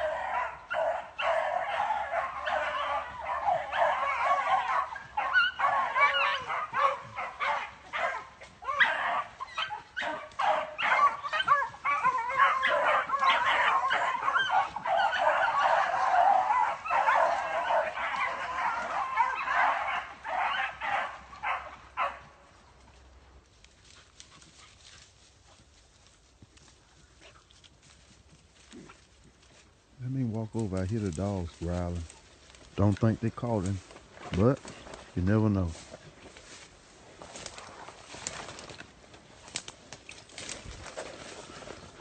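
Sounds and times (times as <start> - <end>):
pack of dogs baying: 0.0 - 22.6.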